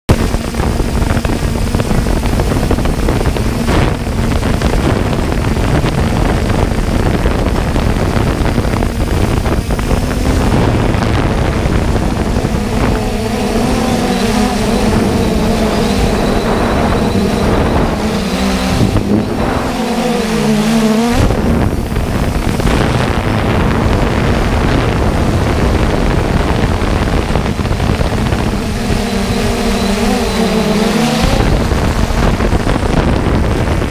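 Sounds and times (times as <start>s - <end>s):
drone propellers humming: 0.1s - 33.9s
wind on microphone: 0.1s - 33.9s.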